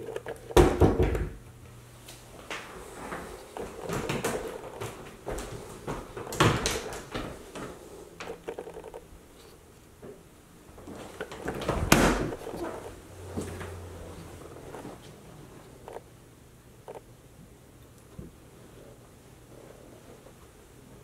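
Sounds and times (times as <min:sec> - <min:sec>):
doors opening and shutting: 0:11.0 - 0:13.9.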